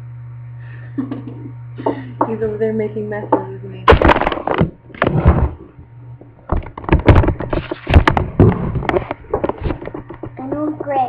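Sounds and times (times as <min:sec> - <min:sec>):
microphone handling noise: 0:03.9 - 0:10.9.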